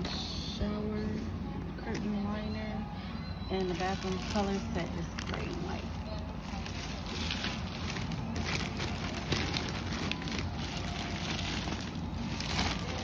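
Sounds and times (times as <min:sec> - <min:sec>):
plastic packaging crinkling: 0:03.6 - 0:13.0.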